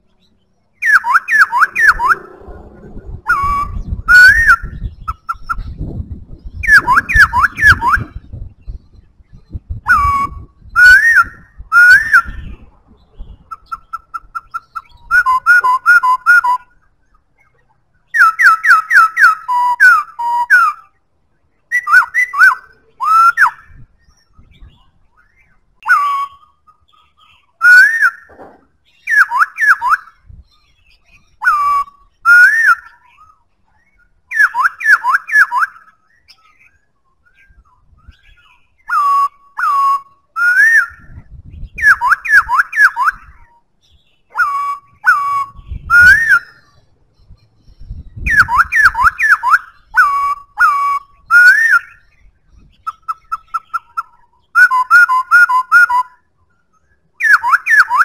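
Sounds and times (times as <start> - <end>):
bird singing whistled phrases: 0.8 - 2.3, 3.2 - 21.0, 21.6 - 58.0.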